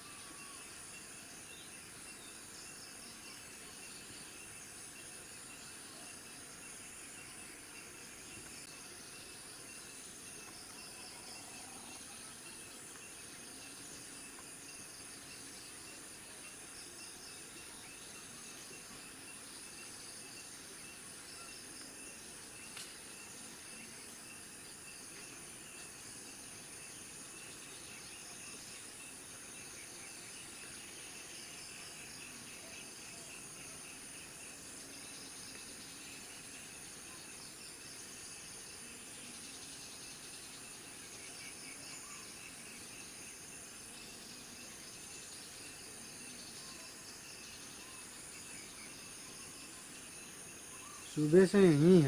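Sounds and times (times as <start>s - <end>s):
insects buzzing: 0.0s - 52.0s
insects chirping: 0.0s - 52.0s
faint click: 22.7s - 23.0s.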